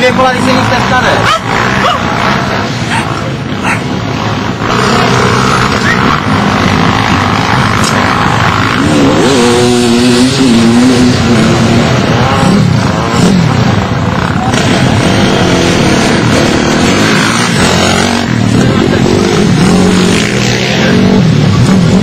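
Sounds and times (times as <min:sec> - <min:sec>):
pit bike engines revving: 0:00.0 - 0:22.0.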